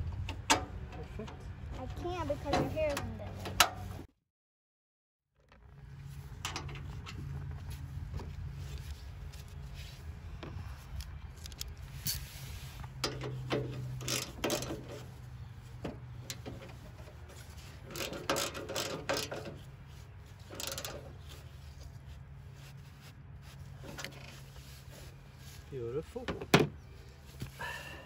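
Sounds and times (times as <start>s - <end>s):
ratchet wrench clicking: 13.9s - 14.8s, 17.9s - 19.5s, 20.5s - 21.0s.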